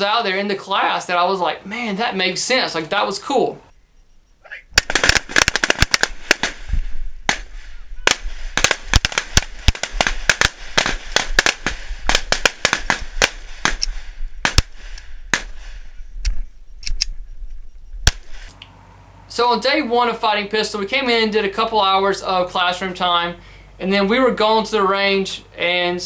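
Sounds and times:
pistol shots: 4.8s - 6.7s, 7.3s - 15.7s, 18.1s - 18.5s.

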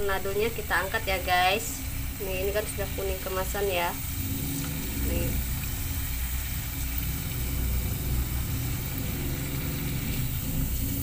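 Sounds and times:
low motor-like hum: 0.0s - 11.0s
potato slices sizzling in oil: 0.0s - 11.0s.

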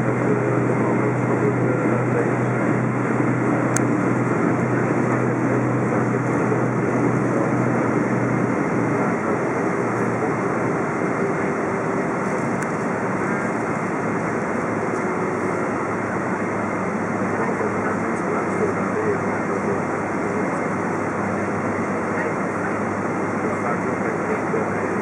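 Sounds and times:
jet engine cabin rush: 0.0s - 25.0s.

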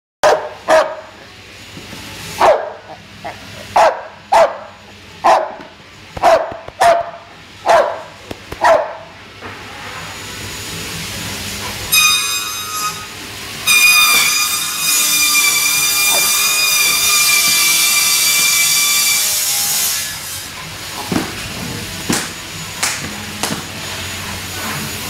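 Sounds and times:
dog barking: 0.2s - 1.1s, 2.4s - 9.1s.

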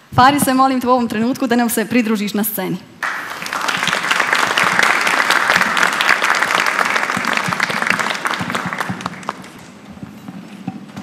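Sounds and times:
audience applauding: 3.0s - 9.8s.

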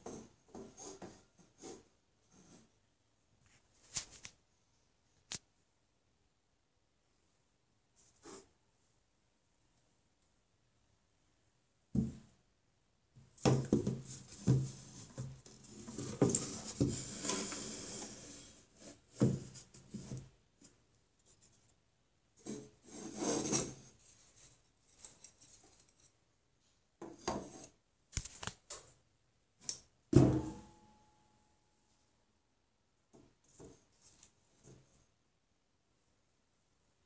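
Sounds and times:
rubbing and scraping on wooden easel: 0.0s - 2.8s, 13.8s - 20.3s, 22.4s - 26.2s.

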